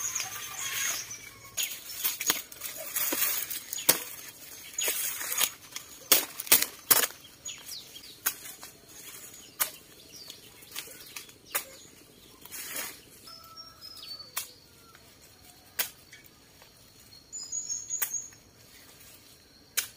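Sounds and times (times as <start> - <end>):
dry rustling: 0.0 - 13.2
machete chopping dry corn stalks: 0.1 - 13.0, 14.3 - 14.7, 15.6 - 16.3, 17.9 - 18.3
dry stalks snapping: 1.6 - 12.9, 14.3 - 14.7, 15.6 - 16.2.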